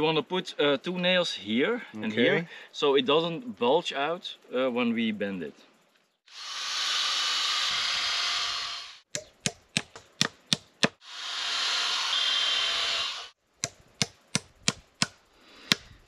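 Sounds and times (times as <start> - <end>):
cordless drill boring into wood: 6.3 - 9.0, 11.0 - 13.4.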